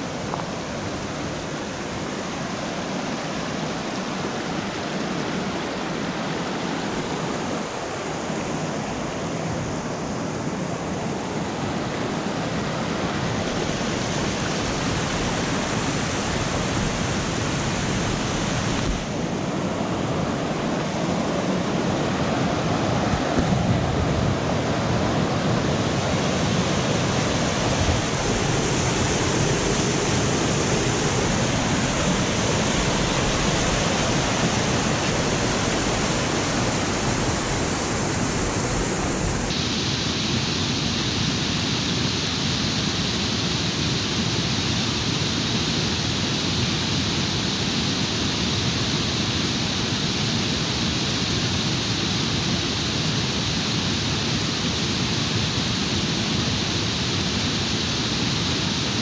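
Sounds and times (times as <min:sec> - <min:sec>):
creek rushing over boulders: 0:00.0 - 0:43.7.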